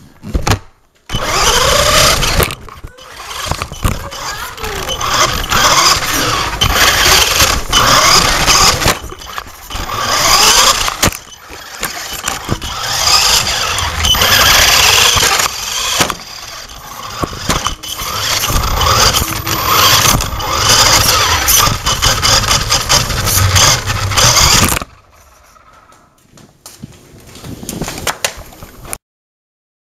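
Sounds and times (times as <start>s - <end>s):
electric motor whining: 1.1s - 25.6s
rushing noise: 16.5s - 25.2s.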